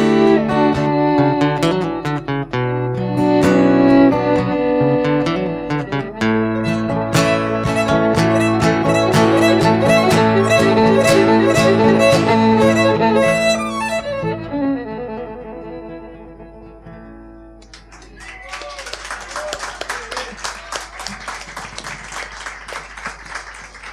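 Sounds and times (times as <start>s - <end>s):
violin: 0.0s - 17.5s
acoustic guitar: 0.0s - 17.9s
audience clapping: 17.6s - 23.9s.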